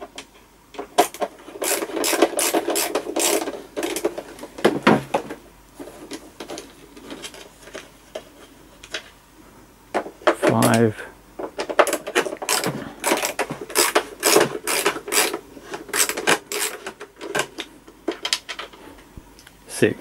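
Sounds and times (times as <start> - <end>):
screwdriver turning screw: 1.6 - 3.4, 12.4 - 16.8
plastic parts clicking: 11.4 - 18.8.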